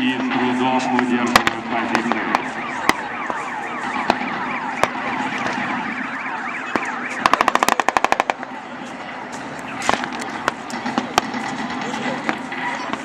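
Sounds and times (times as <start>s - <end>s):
siren-like falling sweeps: 0.0s - 13.0s
blank gunfire shots: 6.7s - 8.4s
machine-gun burst: 7.2s - 8.4s.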